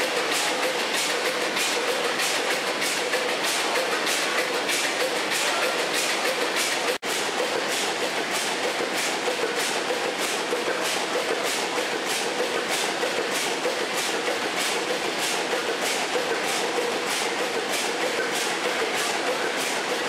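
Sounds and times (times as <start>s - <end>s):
engine running with steady beat: 0.0s - 20.0s.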